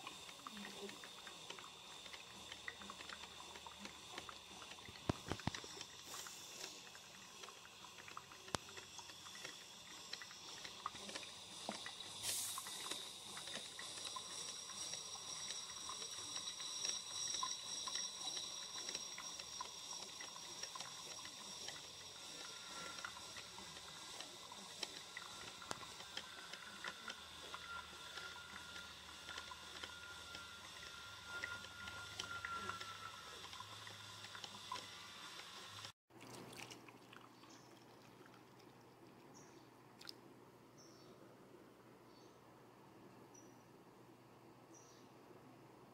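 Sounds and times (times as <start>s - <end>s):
coffee maker hissing and bubbling: 0.0s - 39.4s
coffee poured into a mug: 36.2s - 39.2s.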